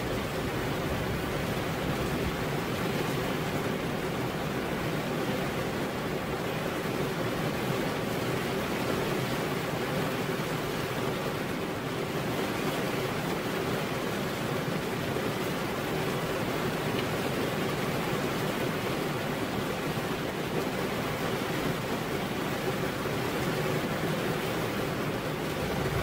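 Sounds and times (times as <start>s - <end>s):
heavy rain on a roof: 0.0s - 26.0s.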